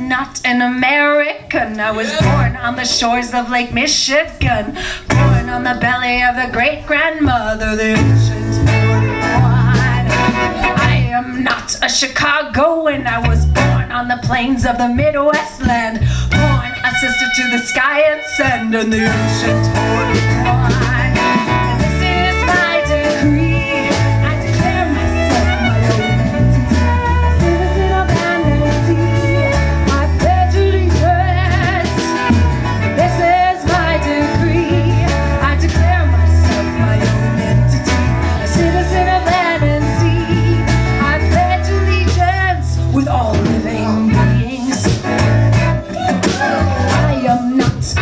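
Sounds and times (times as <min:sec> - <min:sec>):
folk band playing: 0:00.0 - 0:48.0
bass line: 0:01.5 - 0:11.5, 0:12.6 - 0:48.0
violin melody: 0:16.3 - 0:30.0.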